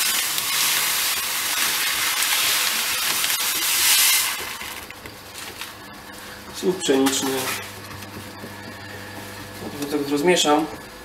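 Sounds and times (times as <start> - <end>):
grain pouring from plastic bag: 0.0 - 4.9.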